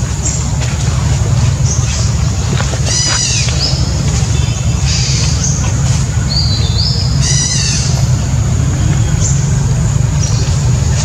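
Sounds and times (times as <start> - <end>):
birds chirping: 0.0 - 11.0
loud steady low rumble: 0.0 - 11.0
richer bird call: 2.8 - 10.6.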